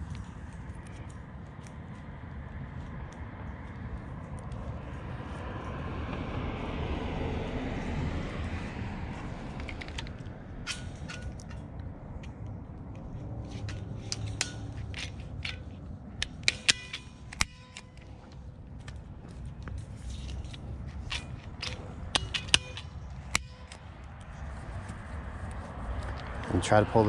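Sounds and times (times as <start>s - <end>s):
tool snapping tie: 9.6s - 12.5s, 13.5s - 19.0s, 19.6s - 25.0s
tensioning tool clicking: 9.6s - 19.0s, 20.1s - 24.3s.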